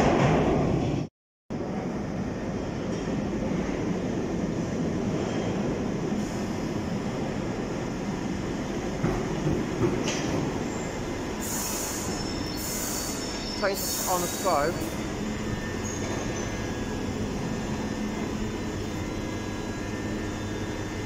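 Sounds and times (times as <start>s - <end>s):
underground train rumbling: 0.0s - 21.0s
wheel squeal: 10.7s - 14.2s
high hissing bursts: 11.4s - 15.0s.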